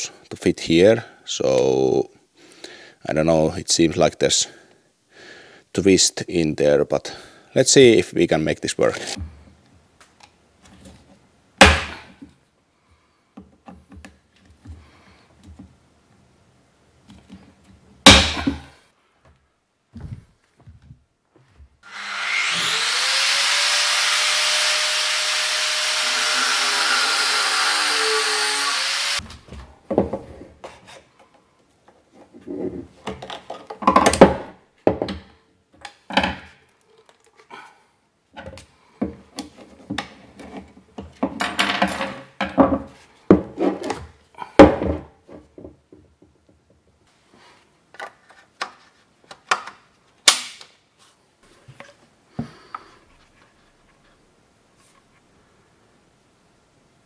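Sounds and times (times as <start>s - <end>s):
power tool whining: 21.8s - 29.2s.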